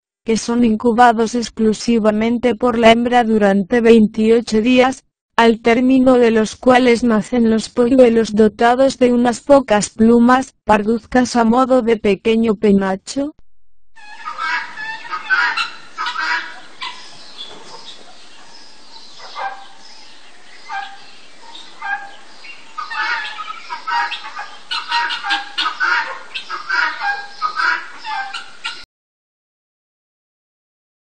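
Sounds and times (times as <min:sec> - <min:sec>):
peacock calling: 0:14.0 - 0:28.9.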